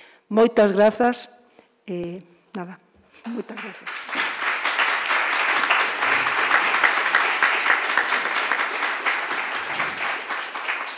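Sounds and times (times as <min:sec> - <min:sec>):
audience applauding: 0:03.3 - 0:10.9.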